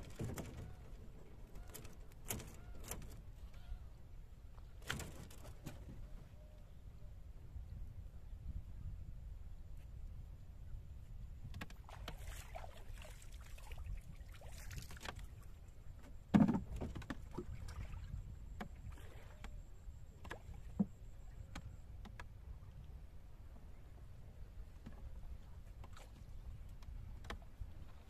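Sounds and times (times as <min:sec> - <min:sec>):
water swishing: 0:11.8 - 0:15.6.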